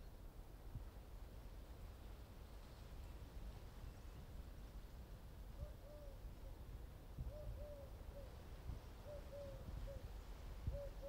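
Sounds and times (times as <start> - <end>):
dove cooing: 7.3 - 8.4, 9.0 - 10.0, 10.7 - 11.0.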